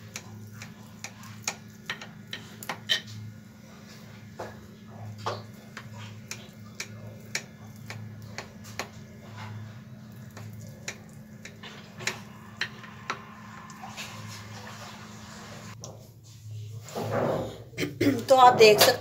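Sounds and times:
low steady hum: 0.0 - 16.9.

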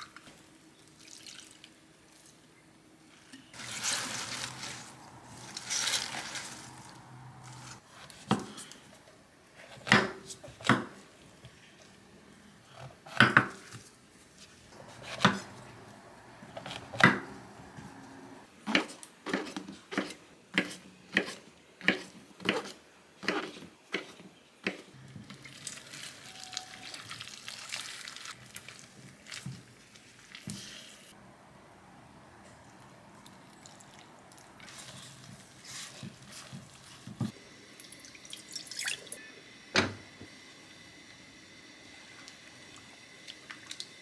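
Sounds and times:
water pouring from kettle: 37.8 - 39.2.

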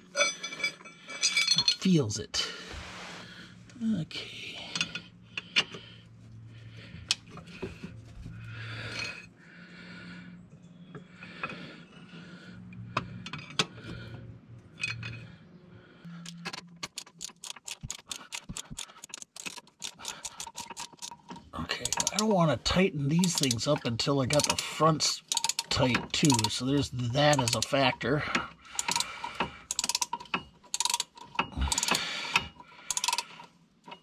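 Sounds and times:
metal scraping and clinking: 0.0 - 2.6, 14.7 - 15.4, 16.2 - 28.2
ratchet wrench clicking: 16.3 - 21.2, 21.8 - 22.3, 24.3 - 24.7, 25.3 - 26.7, 27.3 - 27.8, 28.8 - 34.0.

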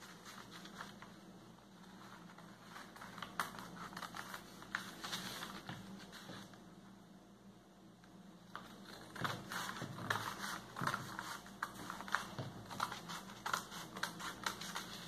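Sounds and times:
scissors snipping paper: 8.8 - 15.0.

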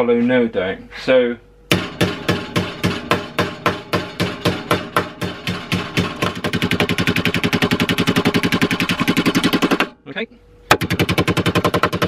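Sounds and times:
small hammer tapping sheet steel: 1.7 - 9.9.

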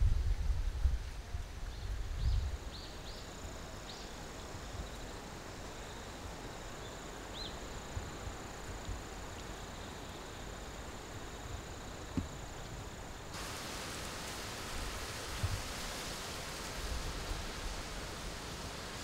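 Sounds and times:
wind rumble on microphone: 0.0 - 3.7, 13.7 - 19.0
soft hiss: 0.0 - 19.0
insect drone: 0.1 - 19.0.

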